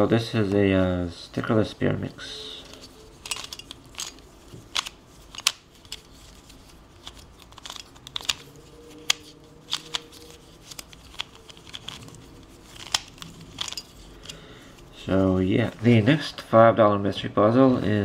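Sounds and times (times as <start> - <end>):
plastic puzzle pieces clicking: 2.7 - 6.1, 7.0 - 14.4.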